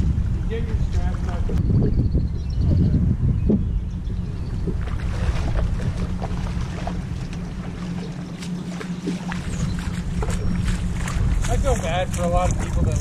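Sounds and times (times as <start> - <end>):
wind rumbling on microphone: 0.0 - 13.0
feet splashing in water: 4.6 - 13.0.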